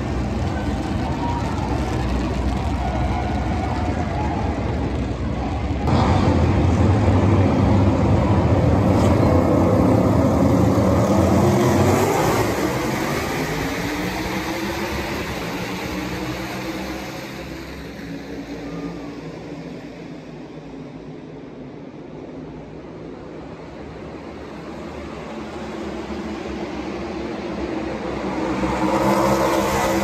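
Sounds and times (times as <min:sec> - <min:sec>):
race car engines at full throttle: 0:00.0 - 0:30.0.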